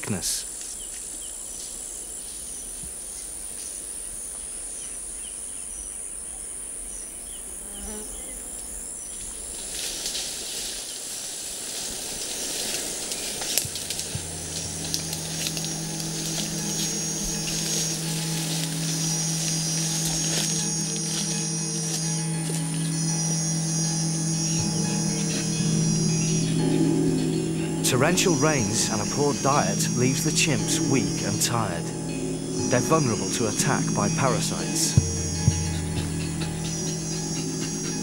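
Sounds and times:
insects buzzing: 0:00.0 - 0:38.0
rustling and clicks: 0:11.8 - 0:22.8
low background music: 0:13.6 - 0:38.0.

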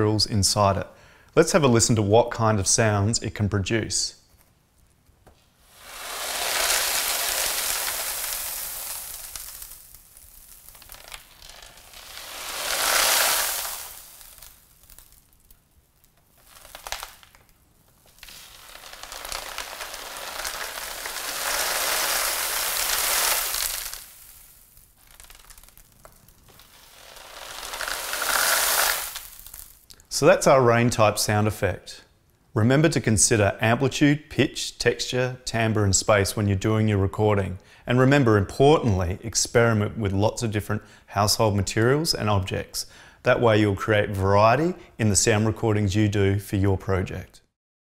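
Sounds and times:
dry grains rattling in cardboard box: 0:05.8 - 0:15.3, 0:16.4 - 0:17.4, 0:18.1 - 0:29.8.

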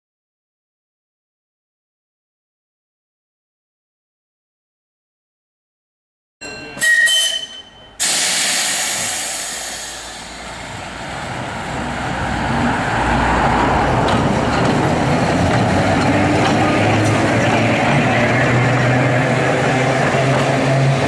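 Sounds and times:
tram running on track: 0:06.4 - 0:21.0.

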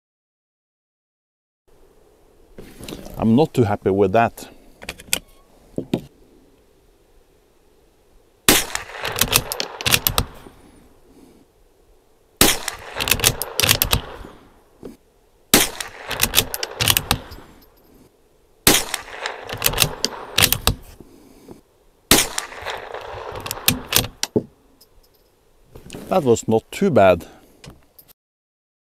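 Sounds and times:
rifle shots: 0:08.5 - 0:10.4, 0:12.4 - 0:14.4, 0:15.5 - 0:17.5, 0:18.6 - 0:20.9, 0:22.1 - 0:24.2.

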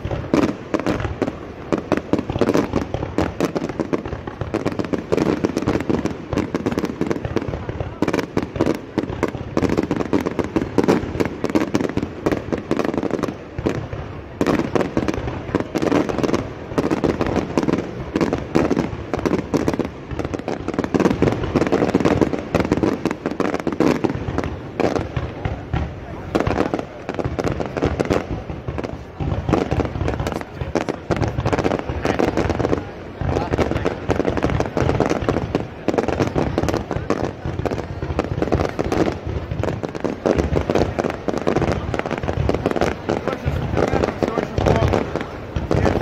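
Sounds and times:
fireworks cracking and banging: 0:00.0 - 0:46.0
people talking: 0:25.0 - 0:27.4, 0:28.0 - 0:38.8, 0:40.8 - 0:46.0.

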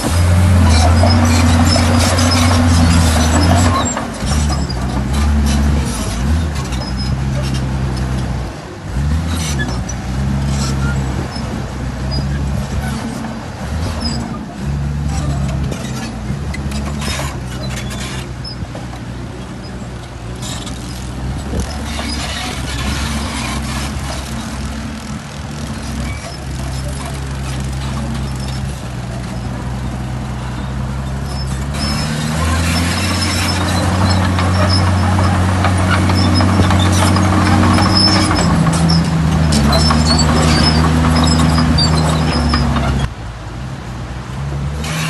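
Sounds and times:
rattles and clatter: 0:00.0 - 0:08.3, 0:09.0 - 0:30.2, 0:31.2 - 0:43.1
heavy diesel engine running: 0:00.0 - 0:45.0.

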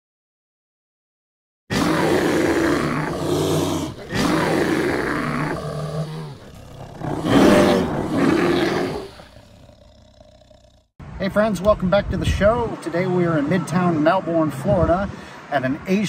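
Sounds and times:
deep long blasts: 0:01.7 - 0:09.9.

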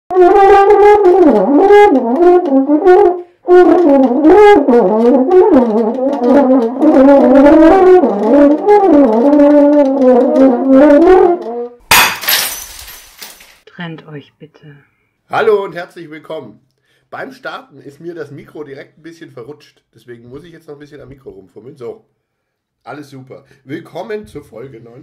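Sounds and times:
brass instrument melody: 0:00.1 - 0:13.4.

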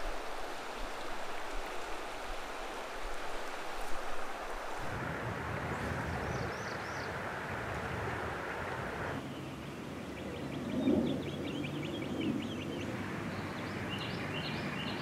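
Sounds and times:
steady hiss: 0:00.0 - 0:05.0.

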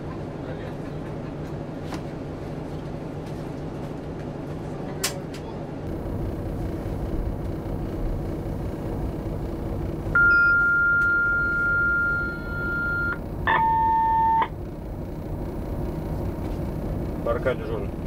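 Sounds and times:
low cab rumble: 0:00.0 - 0:18.0
electronic signal beeps: 0:10.2 - 0:14.5.

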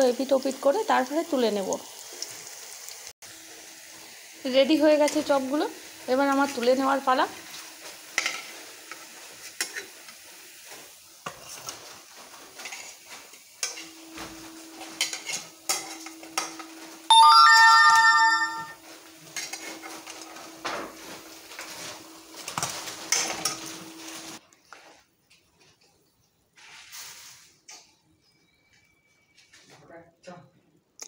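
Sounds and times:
oil sizzling: 0:00.0 - 0:18.6, 0:20.9 - 0:24.4
metal spatula scraping a pan: 0:08.2 - 0:14.0, 0:14.8 - 0:16.6
loud ringing tone: 0:17.1 - 0:18.8.

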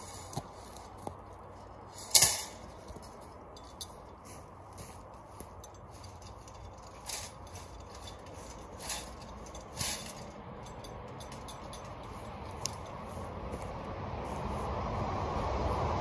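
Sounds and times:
hand scraping dirt: 0:00.0 - 0:15.9
low wind rumble: 0:00.0 - 0:16.0.

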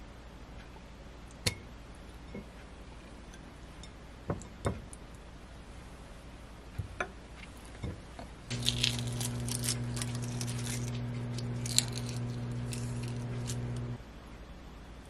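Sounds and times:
egg shell cracking and peeling: 0:08.5 - 0:14.0
microwave oven humming: 0:08.5 - 0:14.0.

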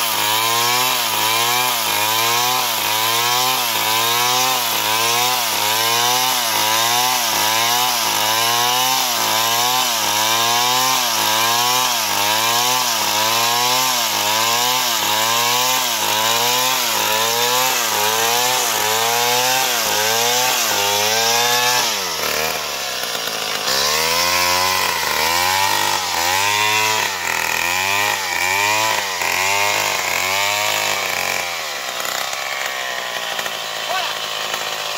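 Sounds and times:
chainsaw cutting wood: 0:00.0 - 0:34.9.

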